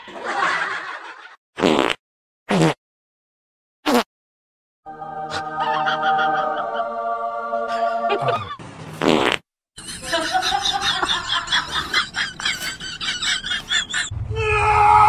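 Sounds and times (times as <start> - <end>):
raspy fart sound: 1.6 - 2.8, 3.8 - 4.1, 8.9 - 9.5
tune: 4.9 - 8.6.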